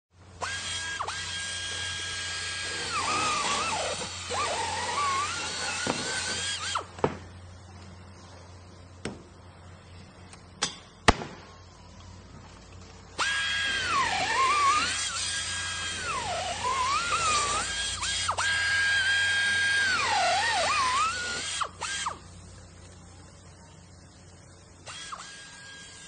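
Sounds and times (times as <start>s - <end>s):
electric drill whining: 0.4s - 7.0s, 13.2s - 22.2s, 24.8s - 26.0s.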